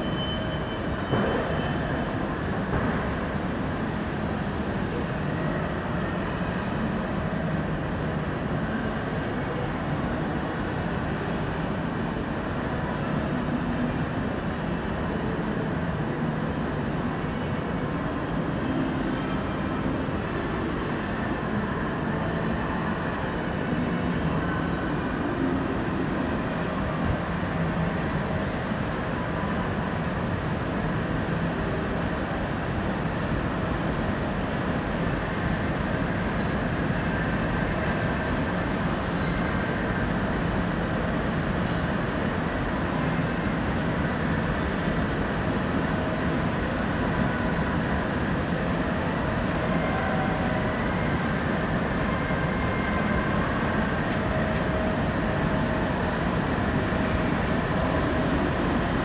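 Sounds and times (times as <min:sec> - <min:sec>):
steady rumbling noise: 0:17.8 - 0:59.0.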